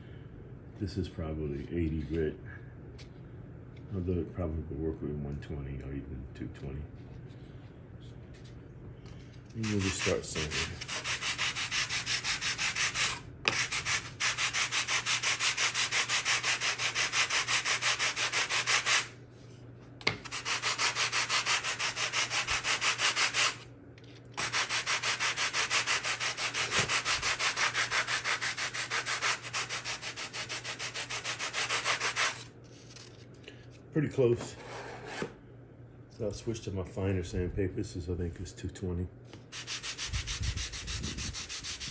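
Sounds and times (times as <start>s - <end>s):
sandpaper rasping on wood: 9.6s - 19.1s, 20.2s - 23.6s, 24.4s - 32.5s, 39.5s - 41.9s.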